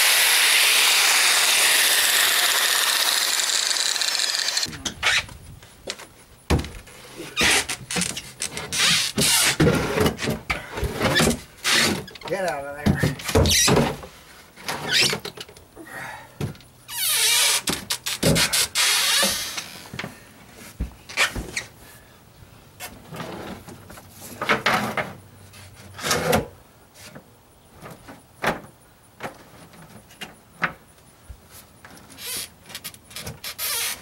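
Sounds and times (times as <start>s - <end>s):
wood scraping against deck: 0.0s - 15.6s, 22.8s - 28.2s.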